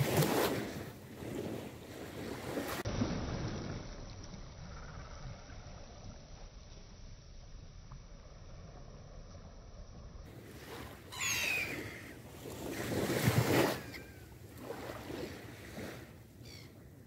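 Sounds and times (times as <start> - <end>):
wind gust on microphone: 0.0 - 4.0
hiss of sea and wind: 0.0 - 17.0
gulls calling: 10.9 - 12.4, 13.4 - 14.4.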